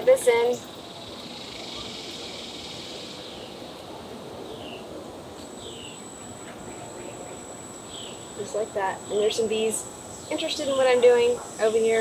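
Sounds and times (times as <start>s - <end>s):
insect drone: 0.0s - 12.0s
bird chirps: 0.3s - 4.9s, 5.5s - 11.9s
thin high steady note: 5.5s - 12.0s.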